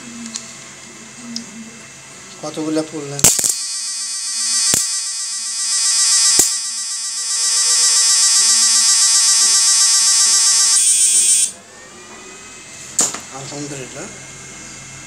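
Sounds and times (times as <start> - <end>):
electric arc snaps: 3.2 - 3.8, 4.4 - 5.1, 6.0 - 6.8
electric arc buzzing: 3.2 - 11.6.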